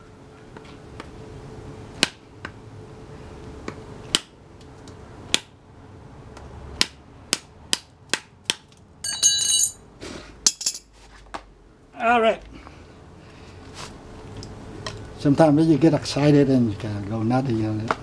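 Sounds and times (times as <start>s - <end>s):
ringing metallic clatter: 9.0s - 9.8s.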